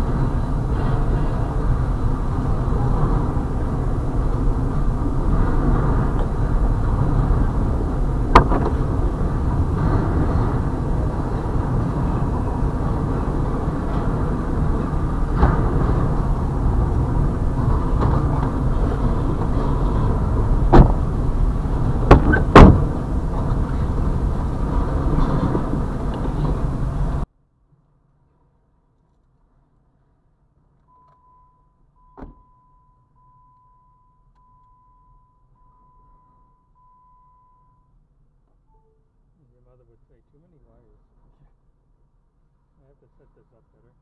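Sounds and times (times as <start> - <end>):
train wheels rumbling on rail: 0.0 - 27.3.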